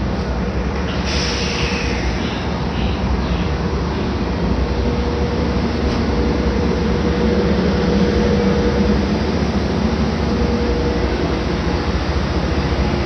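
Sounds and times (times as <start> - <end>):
electric train humming and whining: 0.0 - 13.0.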